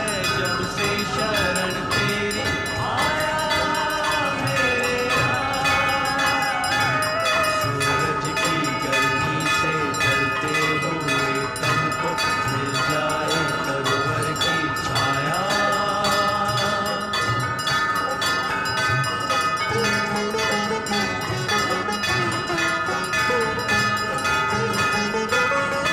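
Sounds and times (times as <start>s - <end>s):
bells ringing: 0.0s - 25.9s
devotional music: 0.0s - 25.9s.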